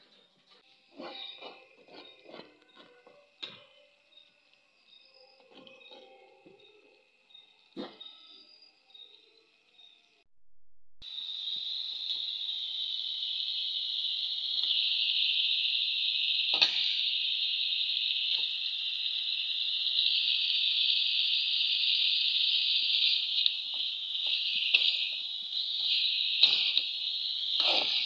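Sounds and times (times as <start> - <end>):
fish sizzling in hot oil: 11.0 - 28.0.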